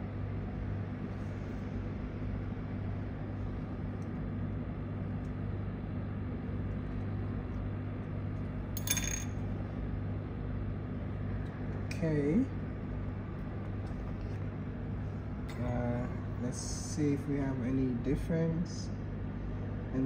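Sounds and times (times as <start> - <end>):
low electrical hum: 0.0 - 20.0
metallic clink: 8.8 - 9.4.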